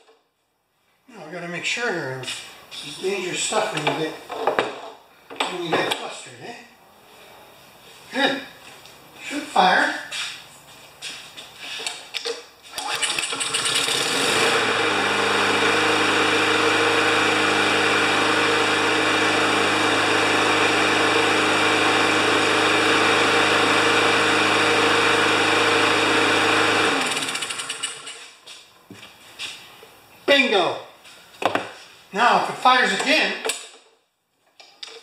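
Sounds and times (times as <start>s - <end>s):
starter cord pull: 12.2s - 14.2s
lawn mower engine running: 12.7s - 28.3s.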